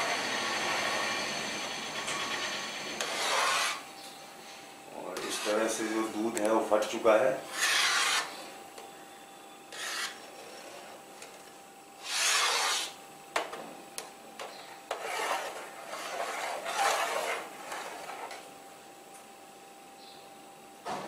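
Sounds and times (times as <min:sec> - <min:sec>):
metal ladle scraping pot: 0:09.8 - 0:11.0.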